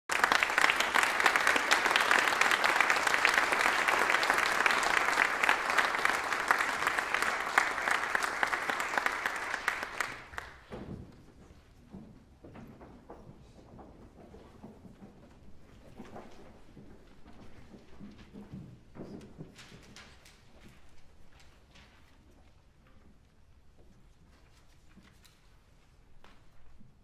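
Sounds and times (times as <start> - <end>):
audience applauding: 0.0 - 10.7.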